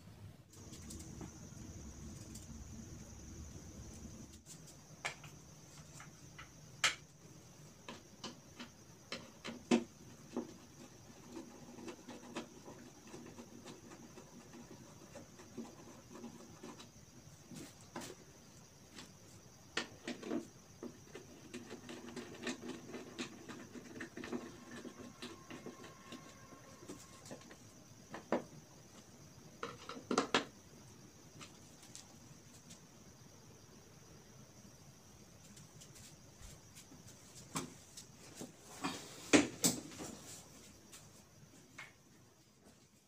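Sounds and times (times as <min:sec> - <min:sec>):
chair parts clicking and knocking: 0:29.6 - 0:30.5.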